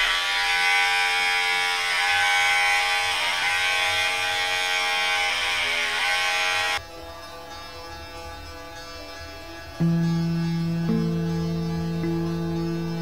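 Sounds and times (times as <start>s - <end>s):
electric hair clippers buzzing: 0.0s - 6.8s.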